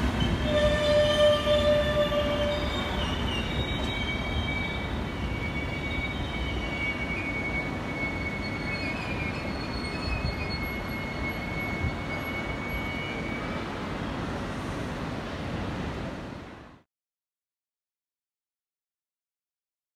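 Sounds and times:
train wheels rumbling on rails: 0.0 - 16.4
high wheel squeal: 0.2 - 13.7.

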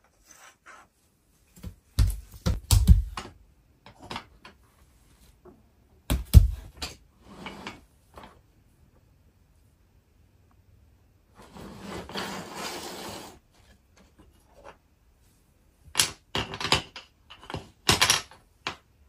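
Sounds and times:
wooden track pieces knocking: 16.0 - 18.8.

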